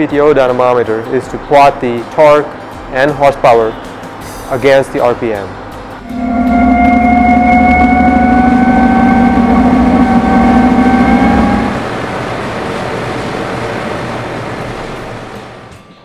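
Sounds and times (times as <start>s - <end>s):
deep hum: 5.8s - 15.6s
tractor shaft whine: 6.0s - 15.7s.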